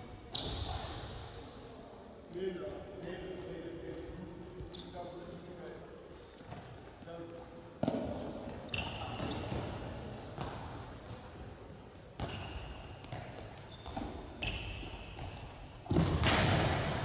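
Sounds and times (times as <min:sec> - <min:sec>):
sneakers squeaking: 0:00.1 - 0:01.2, 0:04.5 - 0:05.4, 0:06.2 - 0:16.3
ball bouncing on hall floor: 0:00.3 - 0:01.3, 0:04.6 - 0:17.0.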